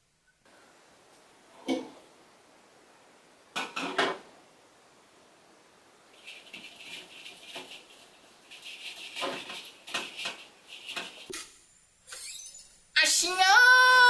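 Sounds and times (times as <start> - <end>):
hands scrubbing over basin: 6.2 - 11.3.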